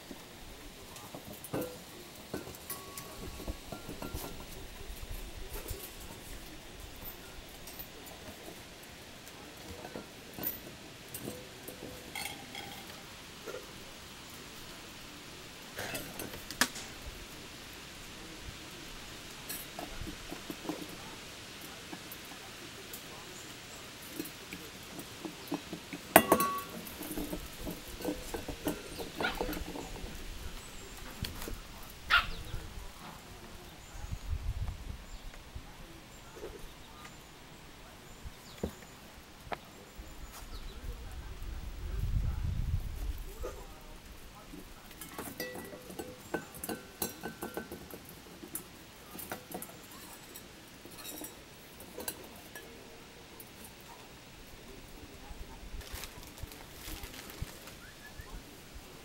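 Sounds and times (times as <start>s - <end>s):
metal dog bowl clanking: 1.2s - 4.6s, 9.7s - 13.7s, 25.0s - 30.2s, 45.0s - 52.8s.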